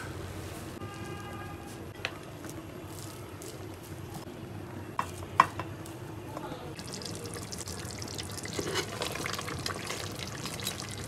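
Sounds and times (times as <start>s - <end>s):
ladle sloshing thick curry: 6.8s - 11.0s.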